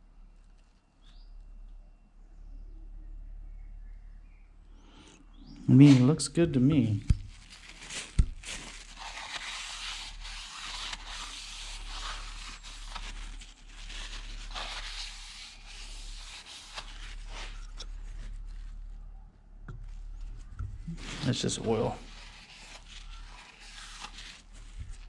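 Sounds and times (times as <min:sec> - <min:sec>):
cloth wiping metal: 0:09.0 - 0:18.2.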